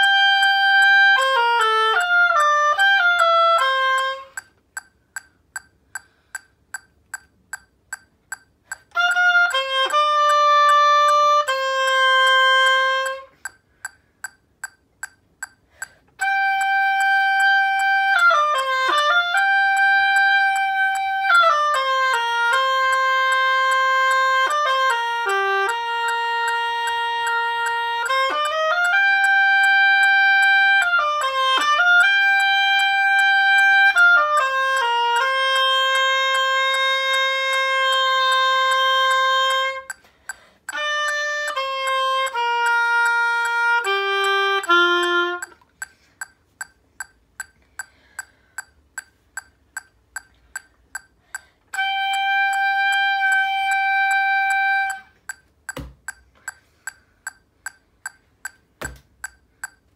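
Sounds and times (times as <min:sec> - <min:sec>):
oboe playing: 0:00.0 - 0:04.5, 0:08.8 - 0:13.6, 0:16.1 - 0:46.0, 0:51.7 - 0:55.4
metronome clicking: 0:00.0 - 0:59.9.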